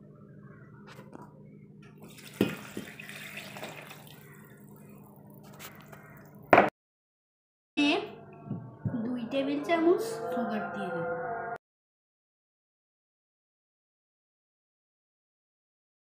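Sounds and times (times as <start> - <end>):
milk pouring and splashing: 2.0 - 5.4.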